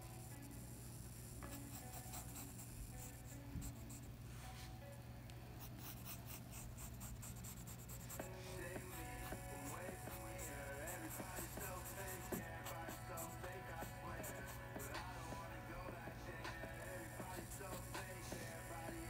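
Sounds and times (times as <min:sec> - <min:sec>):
pencil scratching on paper: 0:01.2 - 0:04.1, 0:05.6 - 0:15.0, 0:17.3 - 0:18.0.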